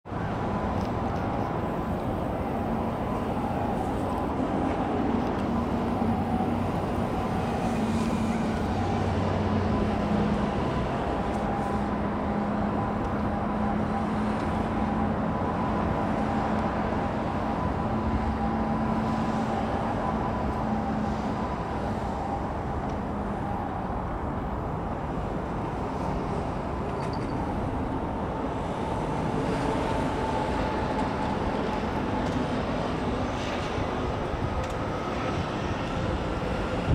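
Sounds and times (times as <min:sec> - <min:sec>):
low engine drone: 0:00.1 - 0:36.9
road traffic hum: 0:00.1 - 0:36.9
wind on microphone: 0:33.1 - 0:36.9.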